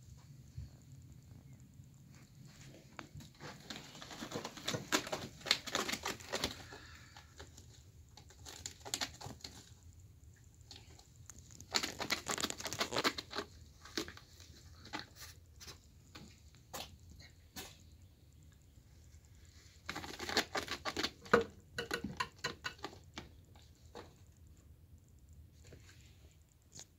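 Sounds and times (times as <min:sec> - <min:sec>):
cat claws scratching rope: 0:11.3 - 0:14.2.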